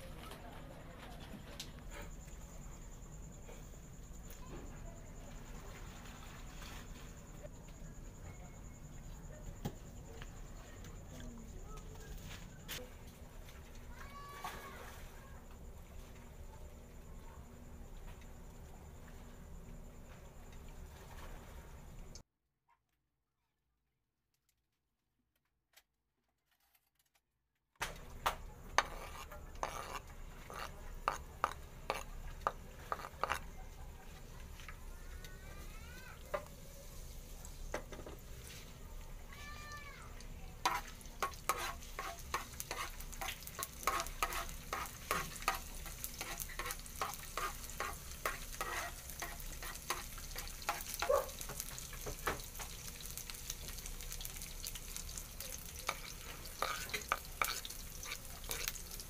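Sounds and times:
garlic sizzling in oil: 0:27.8 - 0:33.5, 0:40.1 - 0:59.0.

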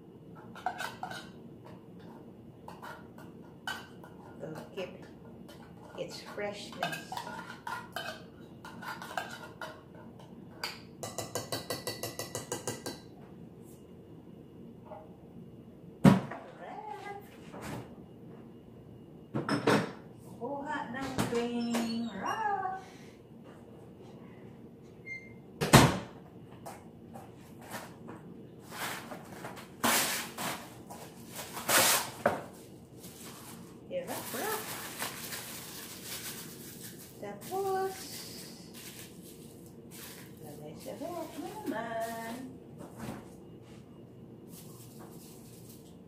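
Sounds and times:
plastic bag pulled from box: 0:34.2 - 0:37.2.

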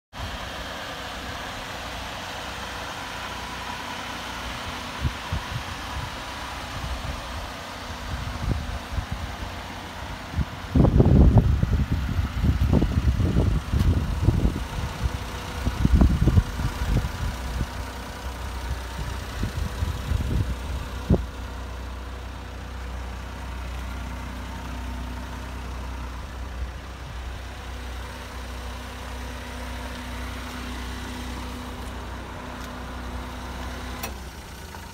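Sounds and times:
van engine idling: 0:00.1 - 0:34.9
wind buffeting microphone: 0:04.9 - 0:21.3.

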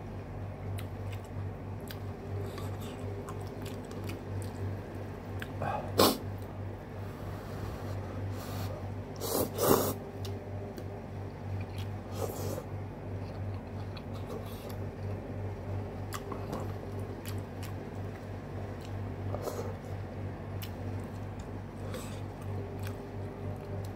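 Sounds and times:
person chewing: 0:00.7 - 0:06.2, 0:11.5 - 0:15.2, 0:16.0 - 0:19.8, 0:20.5 - 0:23.9.

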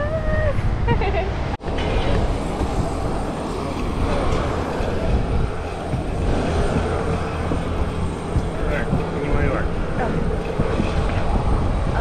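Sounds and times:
propeller engine droning: 0:00.0 - 0:12.0.

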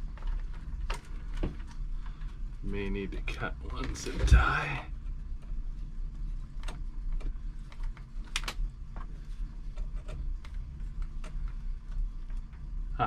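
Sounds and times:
steady low hum: 0:00.0 - 0:13.0
cables and connectors clicking on metal: 0:06.5 - 0:09.1.

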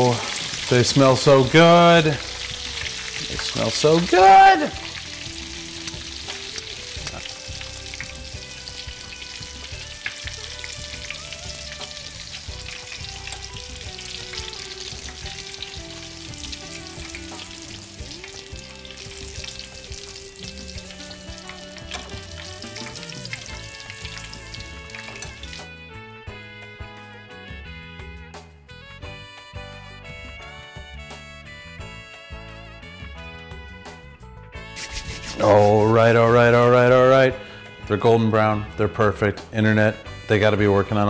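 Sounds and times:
meatballs deep-frying in oil: 0:00.0 - 0:25.8.

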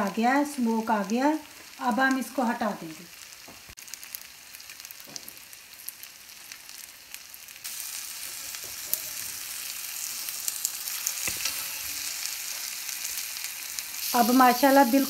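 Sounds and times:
chicken sizzling in a frying pan: 0:00.0 - 0:15.0.

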